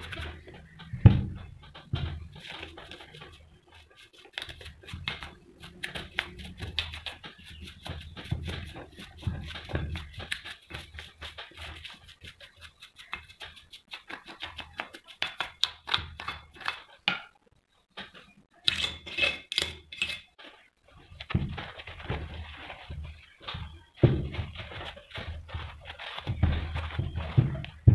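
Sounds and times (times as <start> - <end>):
brush scratching metal pulley: 2.3 - 15.2.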